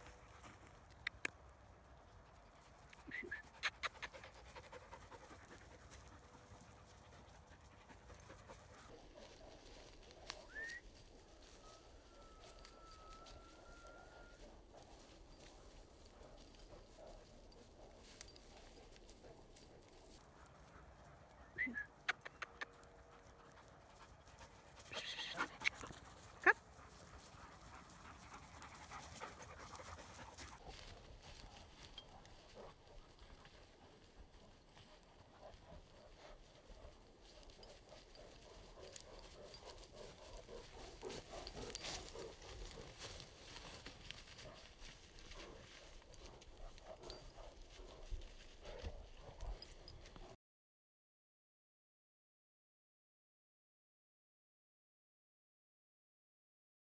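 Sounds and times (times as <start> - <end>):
dog panting: 2.0 - 10.0, 14.7 - 50.4
dog barking: 26.4 - 26.6.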